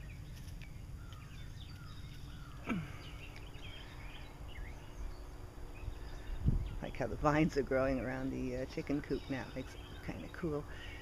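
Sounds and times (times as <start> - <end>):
faint bird chirps: 0.0 - 7.1.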